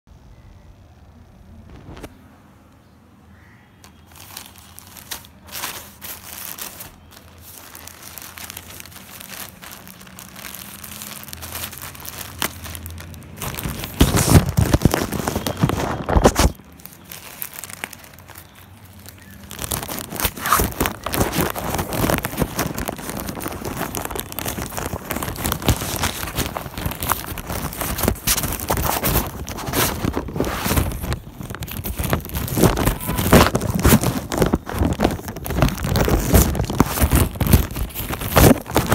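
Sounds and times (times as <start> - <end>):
plastic bag crinkling: 3.8 - 38.9.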